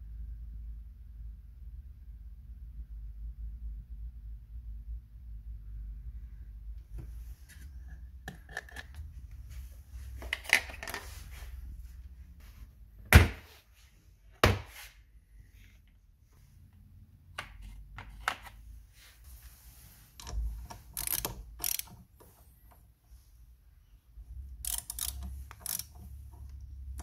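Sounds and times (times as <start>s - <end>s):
metal clicks: 20.2s - 22.8s, 24.5s - 27.0s.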